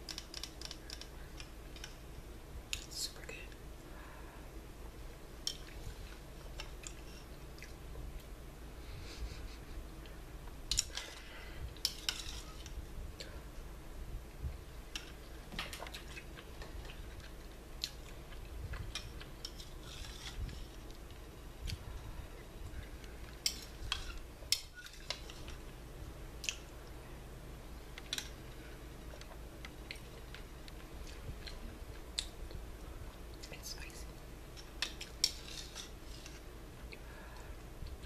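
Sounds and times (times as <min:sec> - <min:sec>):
chewing: 0:05.5 - 0:07.8, 0:15.8 - 0:21.8.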